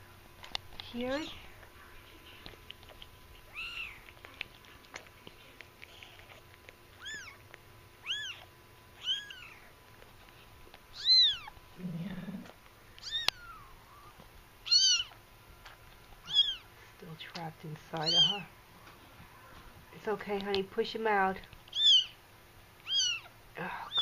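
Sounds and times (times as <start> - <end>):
kitten mewing: 3.4 - 4.3, 5.4 - 7.4, 8.0 - 9.7, 10.9 - 15.2, 16.2 - 16.7, 18.0 - 18.5, 21.7 - 22.2, 22.8 - 24.0.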